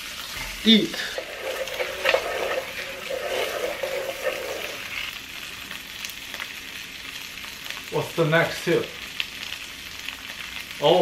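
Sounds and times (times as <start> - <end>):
steak sizzling in a pan: 0.0 - 11.0
wooden spatula scraping: 0.2 - 5.1.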